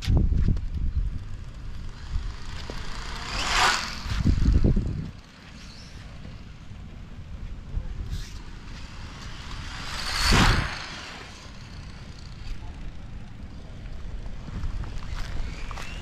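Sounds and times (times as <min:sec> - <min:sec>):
road rumble: 0:00.0 - 0:16.0
wind noise: 0:00.0 - 0:16.0
loud whoosh: 0:07.9 - 0:12.3.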